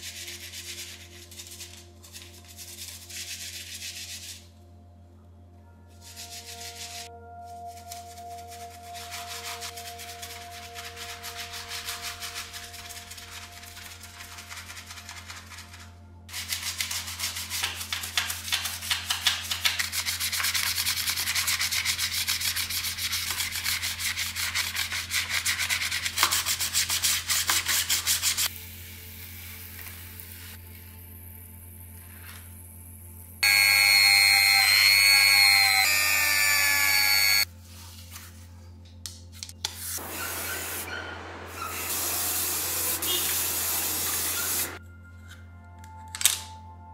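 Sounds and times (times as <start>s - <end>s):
toothbrush scrubbing plastic: 7.9s - 28.5s
water spraying hiss: 41.7s - 44.8s.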